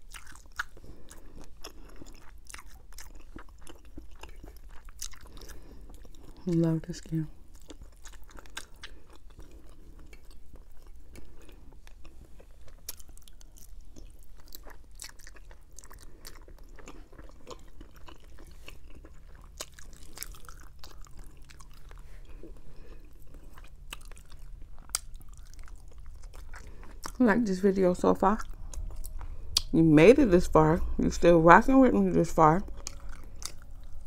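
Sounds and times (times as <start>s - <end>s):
close chewing: 0.0s - 29.8s, 32.1s - 34.0s.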